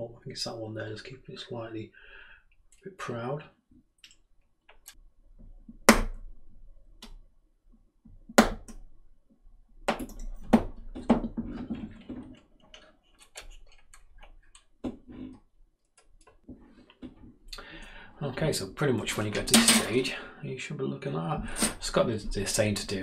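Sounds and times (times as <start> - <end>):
plastic parts clicking and knocking: 9.8 - 17.3.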